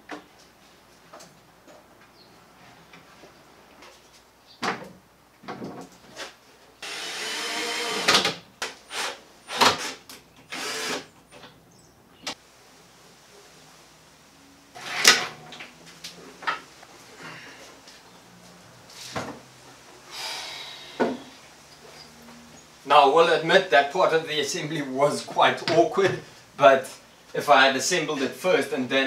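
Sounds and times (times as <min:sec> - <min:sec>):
cordless drill running: 0:06.8 - 0:08.2, 0:08.9 - 0:11.1.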